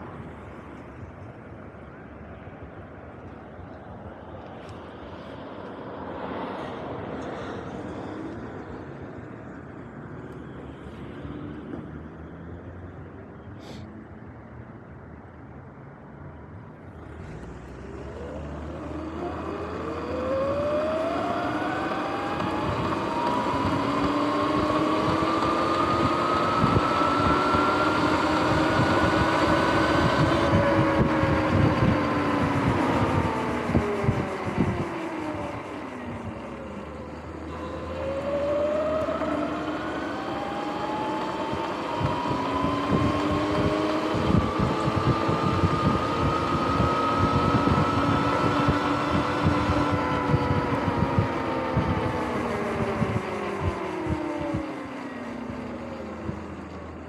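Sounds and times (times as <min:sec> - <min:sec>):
electric motor whining: 0:17.2 - 0:57.0
wind buffeting microphone: 0:18.7 - 0:56.6.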